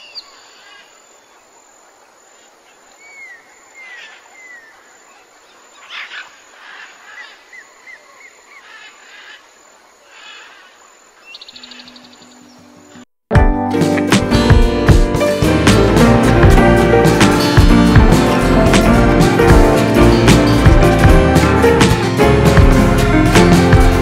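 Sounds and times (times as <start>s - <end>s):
birds chirping: 10.1s - 13.1s.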